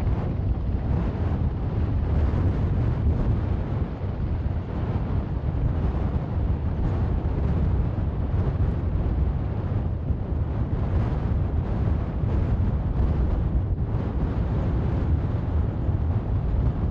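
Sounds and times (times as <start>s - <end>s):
helicopter hovering: 0.0s - 16.9s.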